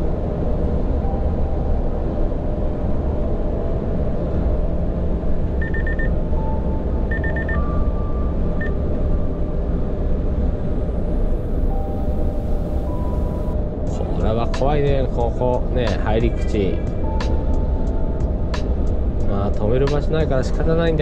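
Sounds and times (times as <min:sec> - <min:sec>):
truck engine and road rumble: 0:00.0 - 0:21.0
short high electronic beeps: 0:05.6 - 0:06.1, 0:07.1 - 0:08.8.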